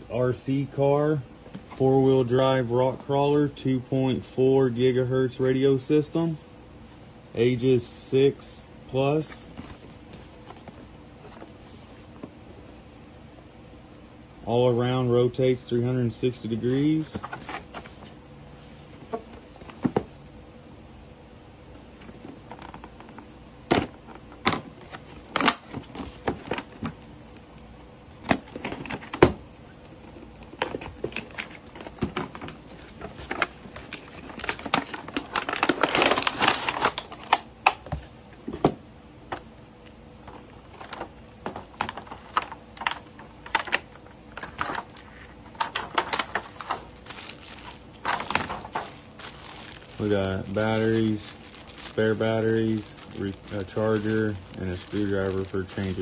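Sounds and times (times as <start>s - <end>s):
plastic packaging rustling: 16.7s - 20.2s, 22.0s - 27.1s, 28.2s - 38.6s, 39.3s - 56.0s.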